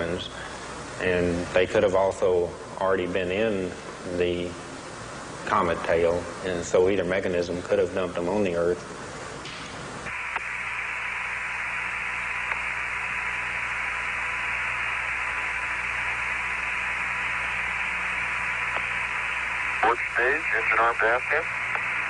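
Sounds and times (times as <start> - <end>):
radio static hiss: 10.0 - 22.0
low hum: 10.1 - 22.0.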